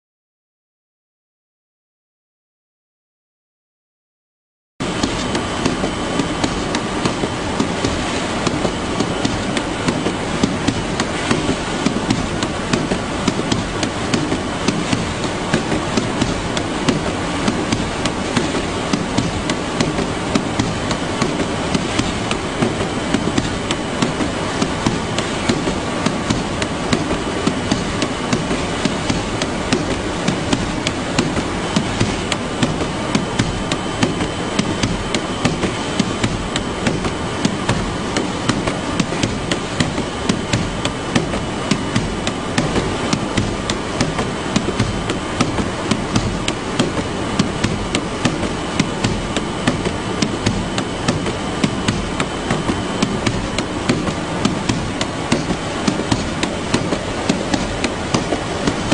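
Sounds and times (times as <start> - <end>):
conveyor machinery noise: 4.8 - 58.9.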